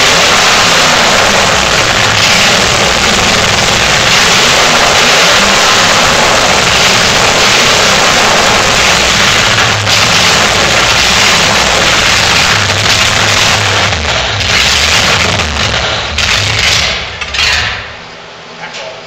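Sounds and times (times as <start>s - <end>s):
loud engine running: 0.0s - 18.3s.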